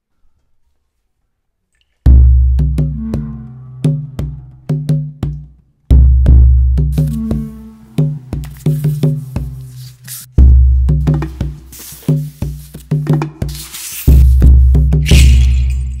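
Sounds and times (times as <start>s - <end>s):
low pitched notes: 2.1s - 9.7s.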